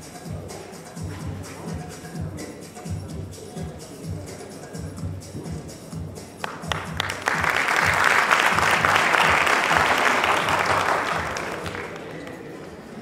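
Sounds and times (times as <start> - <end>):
background music: 0.0 - 12.2
audience applause: 6.4 - 12.4.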